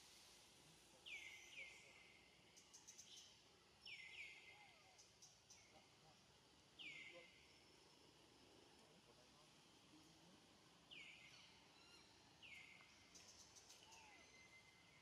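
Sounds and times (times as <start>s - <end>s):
faint high bird chirps: 1.0s - 5.9s, 10.9s - 15.0s.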